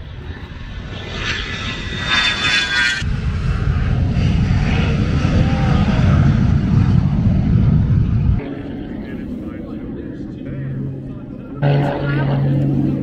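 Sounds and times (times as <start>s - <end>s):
jet engines whining and rumbling: 0.0s - 13.0s.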